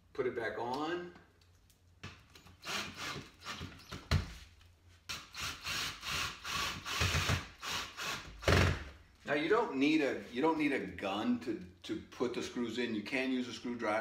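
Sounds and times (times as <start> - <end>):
cordless drill driving screws: 2.4 - 4.0, 5.1 - 8.9.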